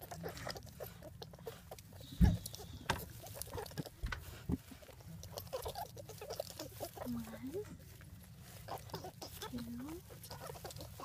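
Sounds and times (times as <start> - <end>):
soft crackles: 0.0 - 11.0
hand rustling through hay: 1.0 - 11.0
dull thumps: 2.2 - 3.2, 3.8 - 4.7.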